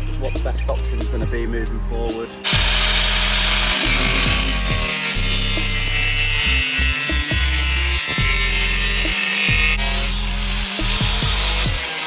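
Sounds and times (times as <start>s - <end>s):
background music with deep bass: 0.0s - 12.0s
angle grinder cutting metal: 2.4s - 12.0s.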